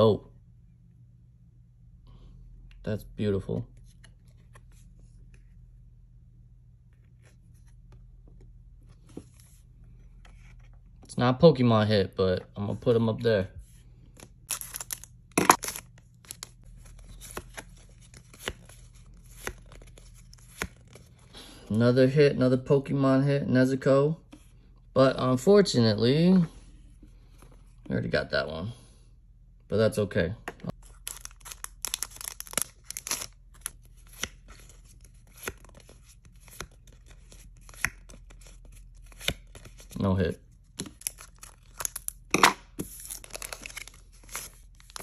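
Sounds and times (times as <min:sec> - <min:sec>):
plastic wrapper rustling: 0:30.8 - 0:33.7.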